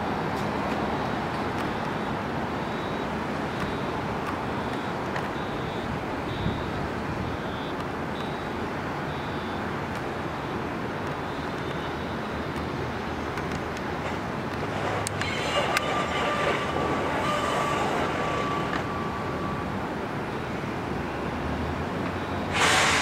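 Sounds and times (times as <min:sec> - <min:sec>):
train wheels rumbling on track: 0:13.3 - 0:20.3, 0:22.0 - 0:23.0
high-pitched wheel squeal: 0:14.7 - 0:19.9.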